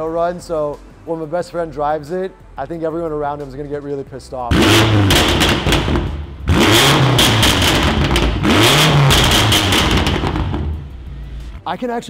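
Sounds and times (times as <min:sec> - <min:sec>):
exhaust crackles and pops: 0:04.5 - 0:11.0
car engine revving: 0:04.5 - 0:11.2.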